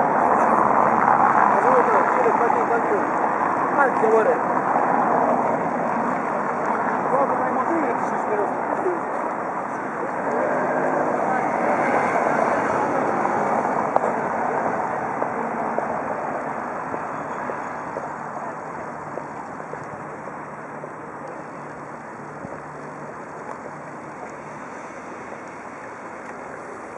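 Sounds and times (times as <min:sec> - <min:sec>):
rushing engine noise: 0:00.0 - 0:26.9.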